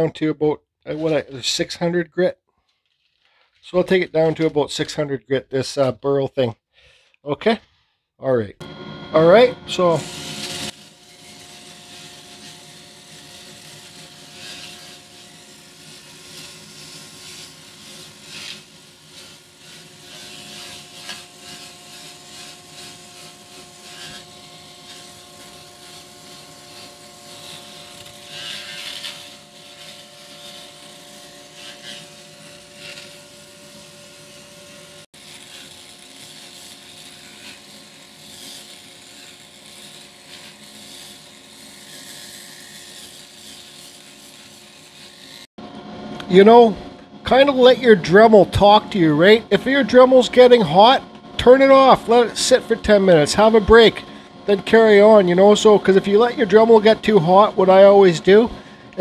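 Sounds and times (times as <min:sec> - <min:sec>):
rotary tool motor whine: 0:08.6 - 0:45.5
sanding disc rasping on wood: 0:09.8 - 0:45.5.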